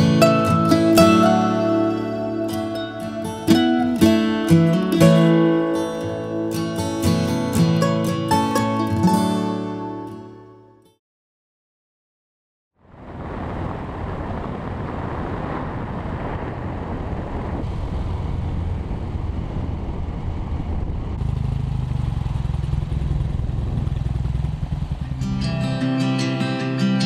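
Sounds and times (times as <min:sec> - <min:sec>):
acoustic guitar music: 0:00.0 - 0:11.0, 0:25.0 - 0:27.0
wind noise: 0:12.8 - 0:21.8
road noise: 0:12.8 - 0:26.6
motorcycle engine running: 0:18.0 - 0:26.0.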